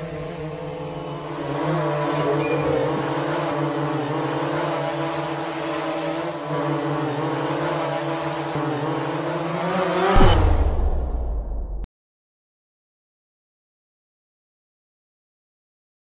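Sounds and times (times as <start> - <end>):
drone propellers humming: 0.0 - 11.0
deep low boom: 10.3 - 11.9.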